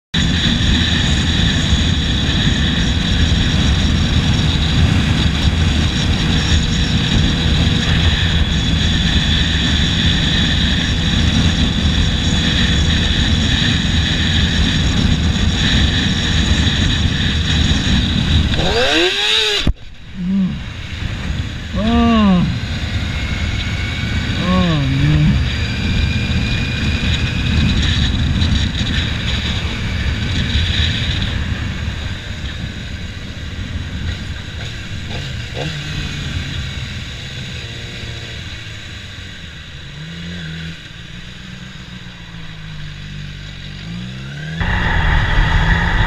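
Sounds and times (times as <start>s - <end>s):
wind rush on microphone: 0.2s - 37.3s, 44.6s - 46.0s
motorcycle engine: 0.2s - 46.0s
engine throttle revs: 18.1s - 20.8s.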